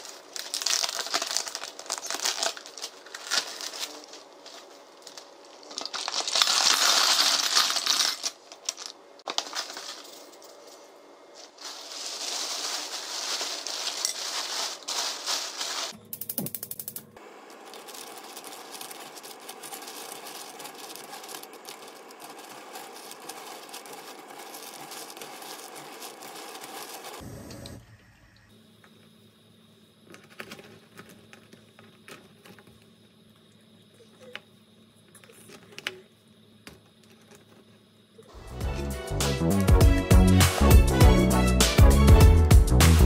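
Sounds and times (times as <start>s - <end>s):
pot crackling hiss: 0.0s - 37.1s
spoon stirring shells in pot: 16.6s - 27.2s
faint hum: 27.1s - 38.6s.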